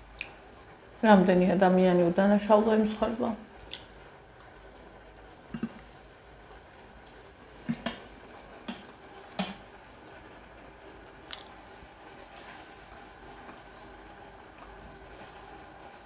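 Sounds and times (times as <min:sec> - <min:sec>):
person chewing food: 0:11.3 - 0:11.6.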